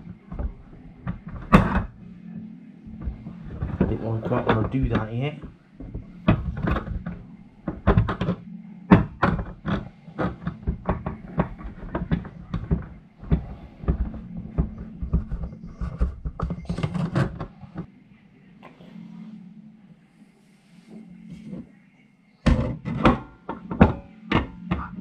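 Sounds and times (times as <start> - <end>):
plastic clicks and knocks: 0.0 - 2.0, 3.0 - 17.9, 22.4 - 25.0
low hum: 0.0 - 25.0.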